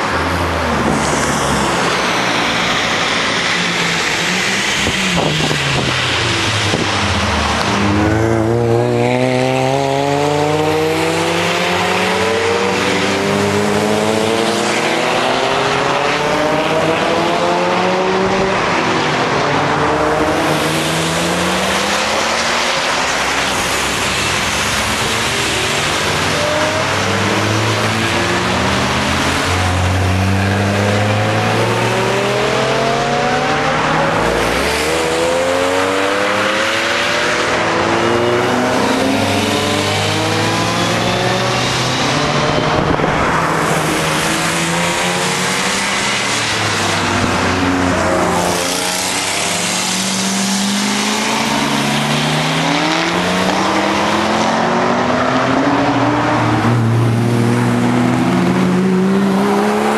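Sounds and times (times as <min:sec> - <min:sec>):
cars accelerating past: 0:00.0 - 0:59.9.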